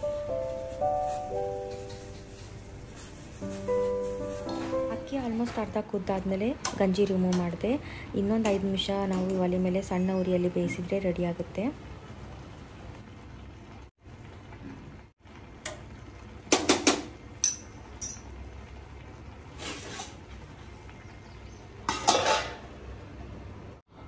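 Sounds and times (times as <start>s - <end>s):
spoon clinking on saucepan: 17.4s - 18.3s
metal plate clattering on pan: 21.9s - 22.7s.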